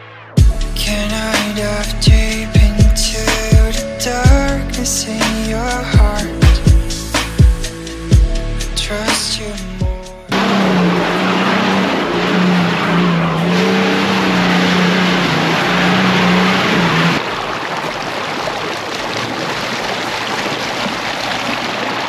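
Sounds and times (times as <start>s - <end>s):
off-road engine running hard: 0.4s - 17.2s
rushing noise: 10.3s - 17.6s.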